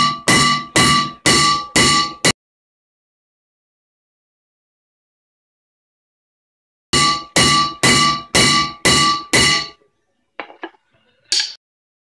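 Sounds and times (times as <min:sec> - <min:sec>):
hammer blows on metal: 0:00.0 - 0:02.3, 0:07.0 - 0:09.8.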